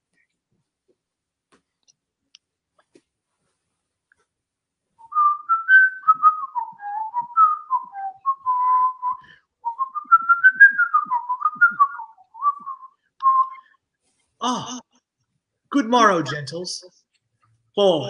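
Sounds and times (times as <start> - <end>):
person whistling a tune: 5.0 - 13.8.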